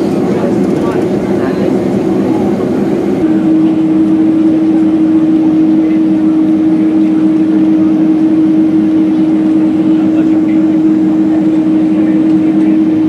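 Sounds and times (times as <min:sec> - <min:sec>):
rush of cabin air: 0:00.0 - 0:05.2
constant humming tone: 0:00.0 - 0:13.0
jet engines droning: 0:00.0 - 0:13.0.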